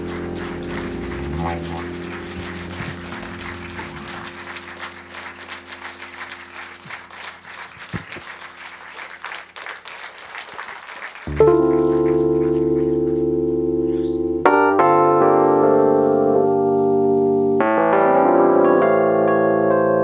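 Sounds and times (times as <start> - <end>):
band's held chord: 0.0 - 7.4, 11.3 - 18.4
loud sustained keyboard chord: 0.0 - 8.5, 11.3 - 20.0
audience applauding: 0.0 - 13.3.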